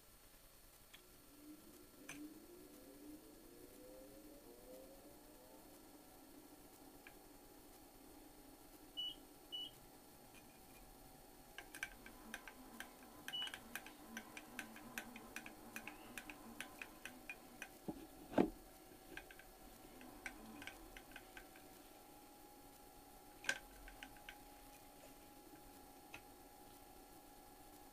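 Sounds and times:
irregular sharp clicks: 11.5 - 21.8.

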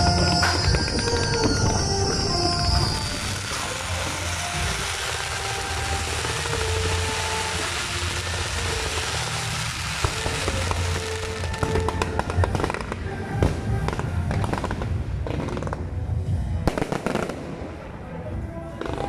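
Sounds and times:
fountain fireworks hissing: 0.0 - 15.6
fireworks crackling and popping: 0.0 - 19.0
music playing: 0.0 - 19.0.

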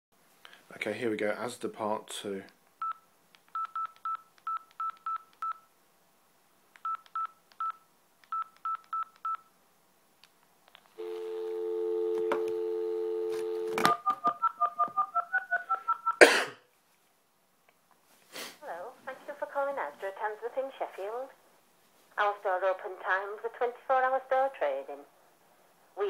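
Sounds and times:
phone keypad beeps: 2.8 - 5.7, 6.8 - 9.4
touch-tone dialing beeps: 3.6 - 5.6
dial tone: 11.0 - 14.8.

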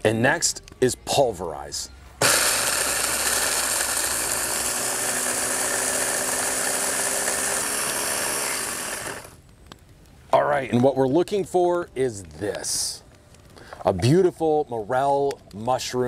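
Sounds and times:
blender motor grinding: 2.2 - 9.4.

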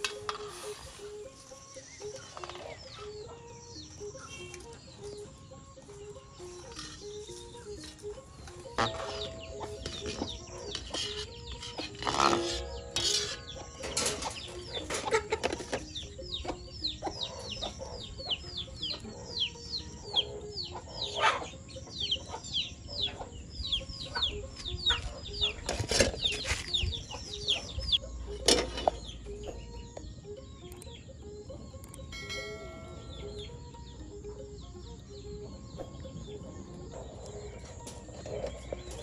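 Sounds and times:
birds calling high notes: 0.0 - 39.0.

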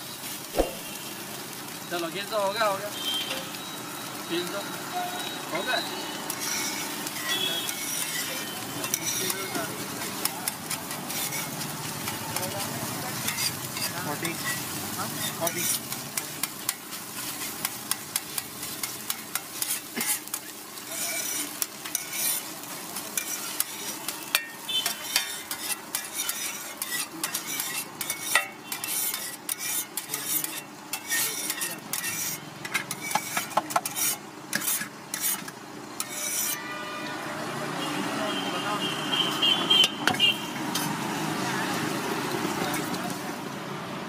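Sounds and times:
sizzling: 0.0 - 38.4, 39.3 - 44.0
metal spatula scraping griddle: 6.3 - 36.8.

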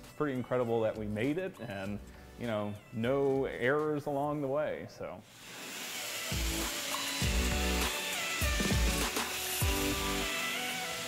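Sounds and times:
pressure washer spraying water: 5.3 - 11.0
background music with deep bass: 6.3 - 11.0.

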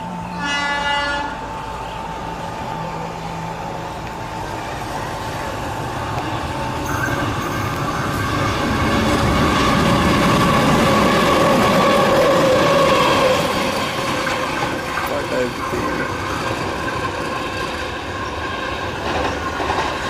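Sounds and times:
locomotive engine and wheels: 0.0 - 20.0
train horn blast: 0.1 - 1.6.

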